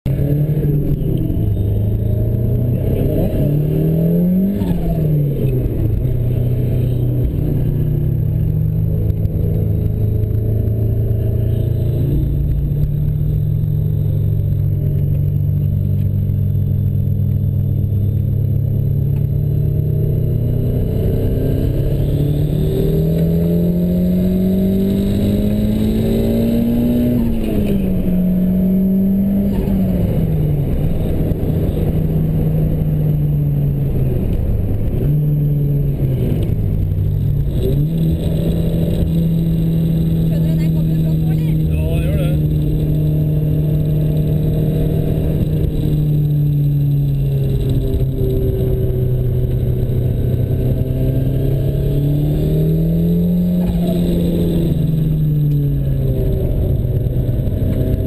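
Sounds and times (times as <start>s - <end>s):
car engine pulling hard: 0.1s - 58.0s.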